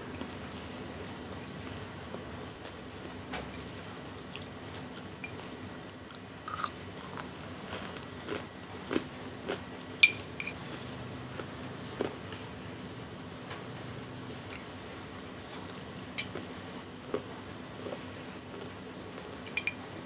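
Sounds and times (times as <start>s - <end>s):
crunching and chewing: 1.5s - 19.6s
spoon clinking on glass bowl: 10.0s - 10.6s, 19.4s - 19.8s.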